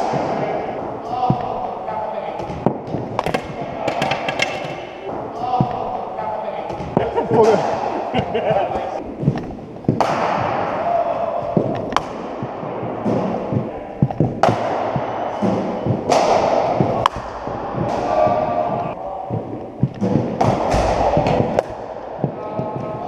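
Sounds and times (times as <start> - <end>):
cricket balls striking bats: 0.0 - 6.0, 6.6 - 23.0.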